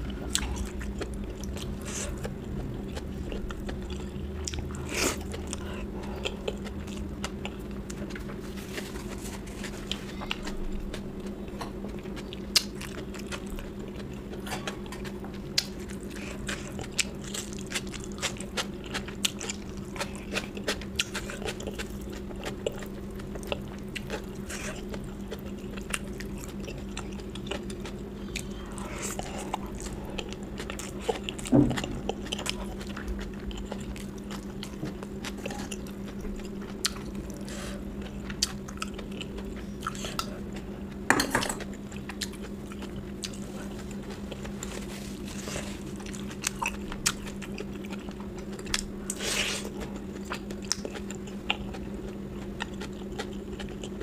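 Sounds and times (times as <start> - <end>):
person chewing food: 0.0 - 54.0
steady low hum: 0.0 - 54.0.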